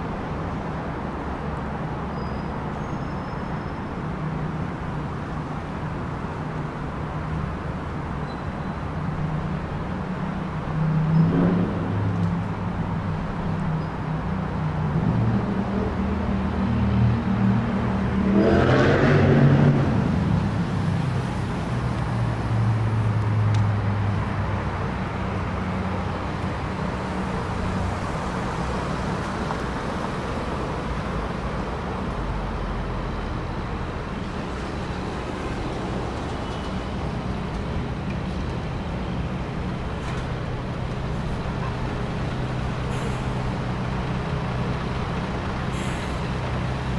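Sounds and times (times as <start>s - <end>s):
traffic engines humming: 0.0s - 46.9s
vehicle passing close: 17.0s - 24.6s.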